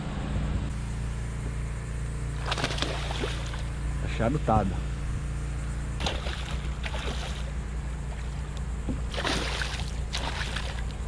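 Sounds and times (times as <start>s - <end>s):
steady low rumble: 0.0s - 11.0s
fish thrashing and splashing: 2.4s - 3.7s, 6.0s - 11.0s.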